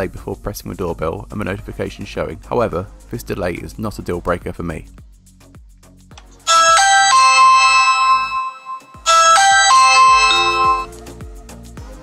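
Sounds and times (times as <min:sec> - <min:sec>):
electronic doorbell chime: 0:06.5 - 0:11.0.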